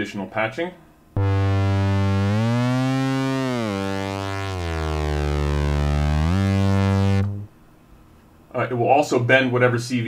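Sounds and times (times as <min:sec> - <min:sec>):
synthesizer note bending in pitch: 0:01.2 - 0:07.5.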